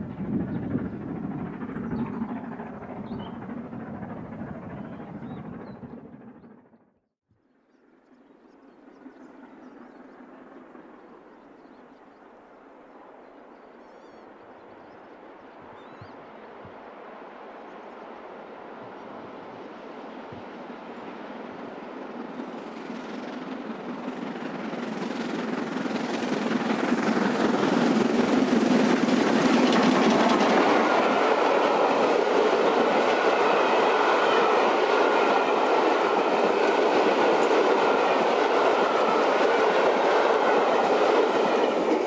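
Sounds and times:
steam train passing: 0:08.6 - 0:42.0
coaches rolling on rails: 0:17.4 - 0:42.0.

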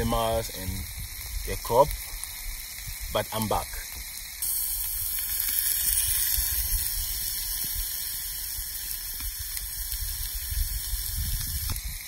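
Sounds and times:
meat sizzling on hot rock: 0:00.0 - 0:12.0.

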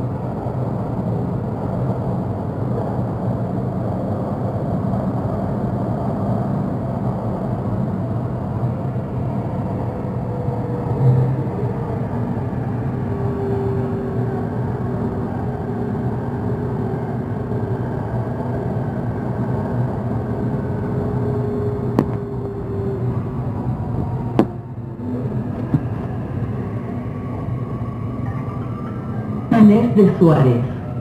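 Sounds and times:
train rumbling through tunnel: 0:00.0 - 0:31.0
humming motor tones: 0:09.4 - 0:31.0.

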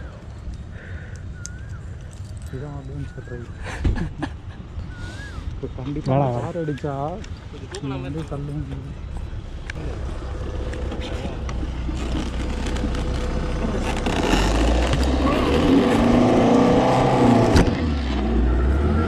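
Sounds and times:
voices: 0:02.3 - 0:04.1, 0:05.4 - 0:11.6
car engine revving: 0:09.8 - 0:19.0.

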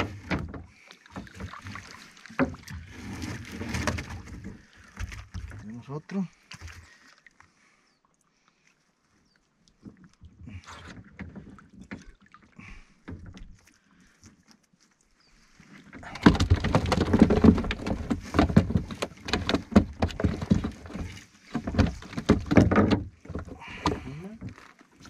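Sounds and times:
fishing net rustling: 0:00.0 - 0:05.4, 0:15.5 - 0:25.0
net knocking against boat hull: 0:16.1 - 0:24.1.

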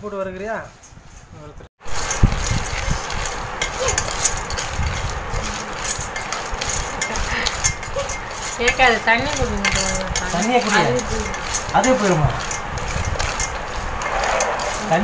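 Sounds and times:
nuts rattling in a metal pan: 0:01.9 - 0:15.0
person speaking: 0:08.6 - 0:12.4, 0:14.0 - 0:15.0.

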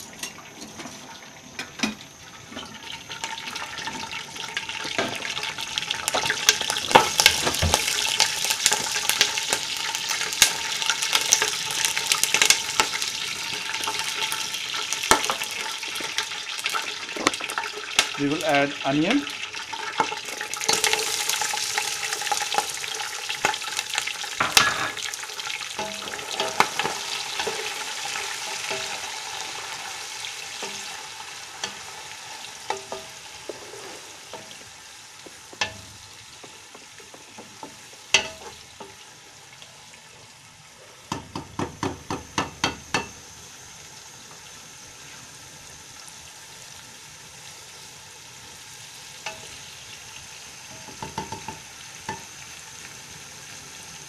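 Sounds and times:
onions sizzling in hot oil: 0:00.0 - 0:54.0
wooden spatula knocking on pot: 0:41.1 - 0:43.1, 0:50.8 - 0:52.2.

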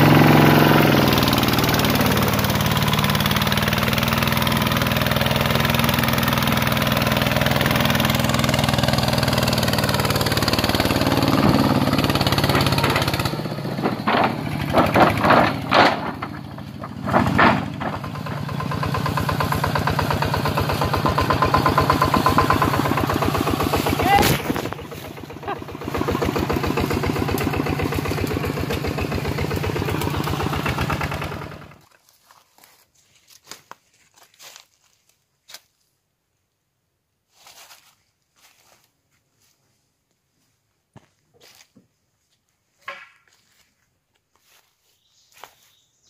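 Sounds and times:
diesel engine chugging: 0:00.0 - 0:31.8
wheel churning through mud: 0:00.0 - 0:32.8.

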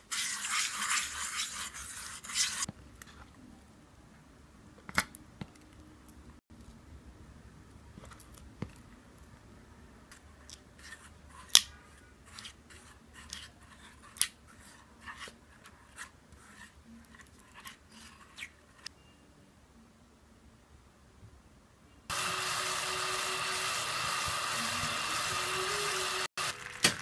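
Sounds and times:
spatula scraping a saucepan: 0:00.0 - 0:02.7, 0:10.8 - 0:18.9.

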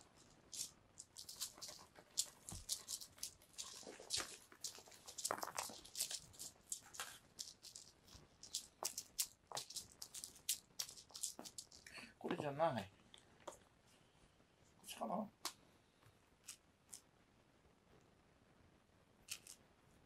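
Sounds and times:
ribbon toy swishing and rustling: 0:00.0 - 0:11.9.

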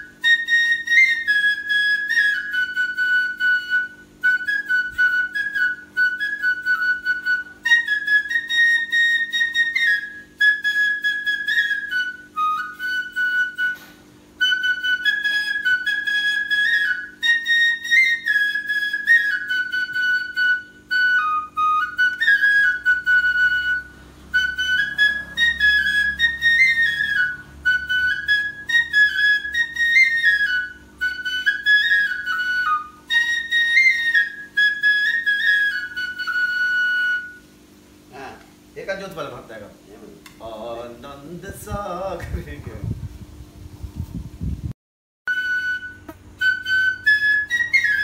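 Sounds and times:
flute playing slow melody: 0:00.0 - 0:37.8, 0:45.3 - 0:48.0.

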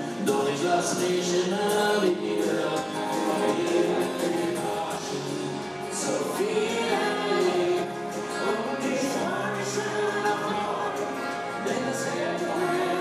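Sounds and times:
acoustic guitar: 0:00.0 - 0:13.0
drums: 0:00.0 - 0:13.0
woman singing into microphone: 0:06.1 - 0:13.0.

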